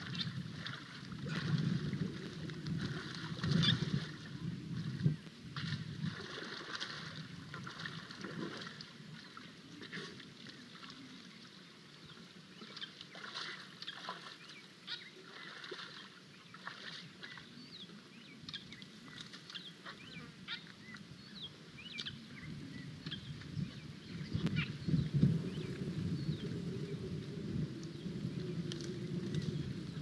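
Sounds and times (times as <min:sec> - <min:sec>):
elephant wading in muddy water: 0:00.0 - 0:30.0
small birds chirping: 0:13.8 - 0:26.5.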